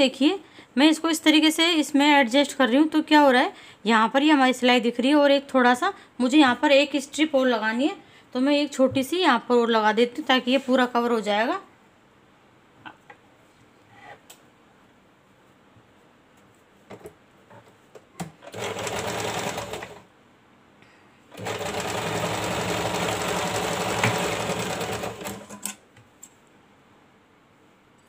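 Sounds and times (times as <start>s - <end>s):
sewing machine stitching: 18.4s - 20.0s, 21.3s - 25.8s.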